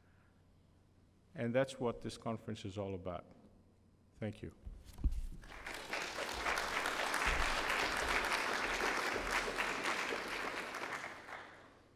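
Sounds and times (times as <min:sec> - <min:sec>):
audience applauding: 0:05.4 - 0:11.9.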